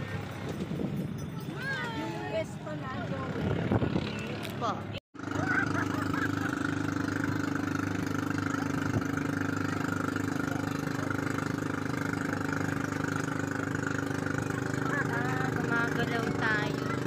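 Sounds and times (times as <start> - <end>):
engine idling: 5.2 - 17.0.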